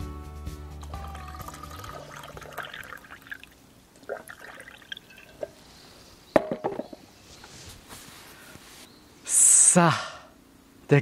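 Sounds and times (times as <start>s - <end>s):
liquid trickling and sloshing: 1.1s - 5.6s.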